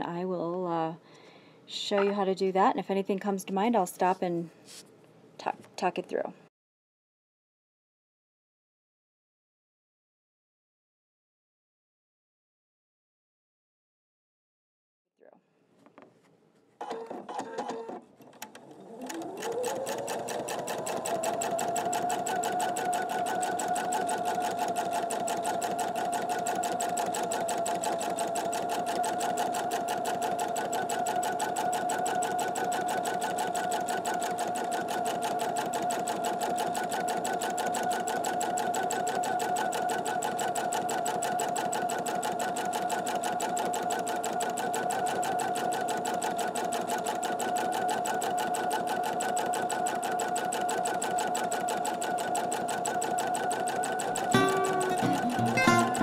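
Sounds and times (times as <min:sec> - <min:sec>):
sewing machine clicks: 0:16.8 - 0:55.4
sewing machine stitching: 0:16.8 - 0:56.0.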